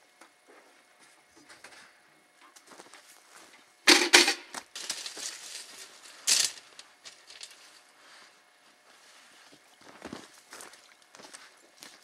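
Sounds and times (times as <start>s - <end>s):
footsteps on leaf litter: 4.5s - 12.0s.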